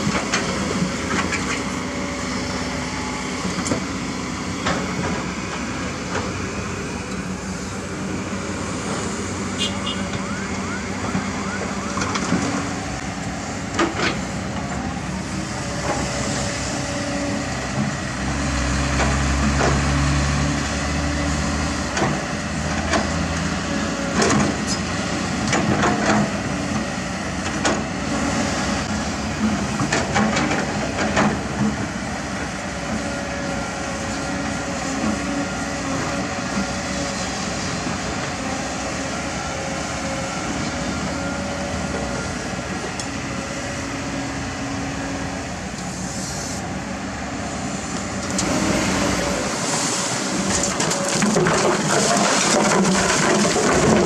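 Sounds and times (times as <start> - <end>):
excavator diesel engine: 0.0 - 54.0
bucket clanking on asphalt: 50.6 - 54.0.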